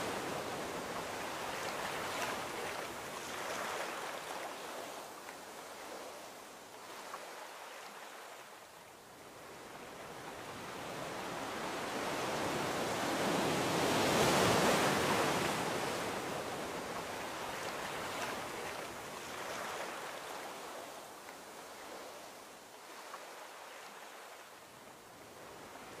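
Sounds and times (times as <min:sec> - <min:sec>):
sea waves washing ashore: 0:00.0 - 0:26.0.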